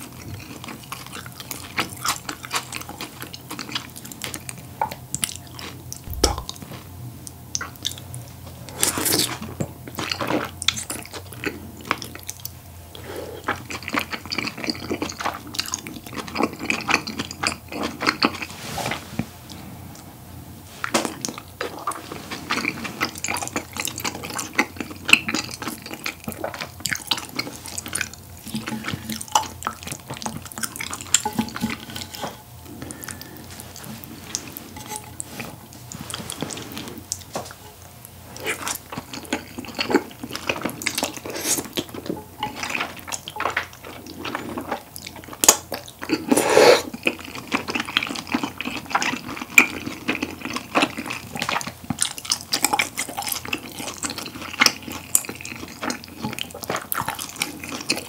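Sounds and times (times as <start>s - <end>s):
wet chewing and lip smacking: 5.2s - 6.6s, 38.4s - 58.0s
slurping: 46.1s - 47.0s.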